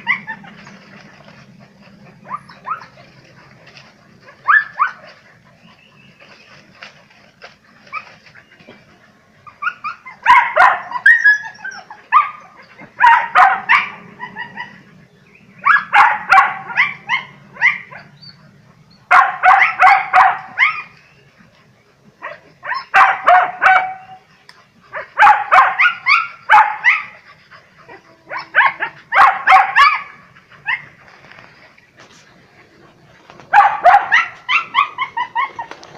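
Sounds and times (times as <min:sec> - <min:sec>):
dogs barking: 0:00.0 - 0:06.2, 0:09.5 - 0:18.2, 0:19.1 - 0:20.9, 0:22.2 - 0:24.3, 0:24.9 - 0:31.0, 0:33.4 - 0:35.8.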